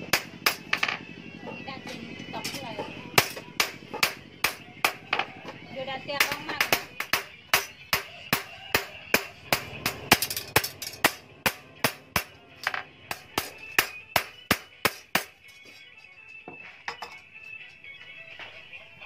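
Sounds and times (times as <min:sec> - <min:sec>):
hammer striking metal on anvil: 0:00.0 - 0:01.0, 0:02.4 - 0:05.3, 0:06.2 - 0:15.4.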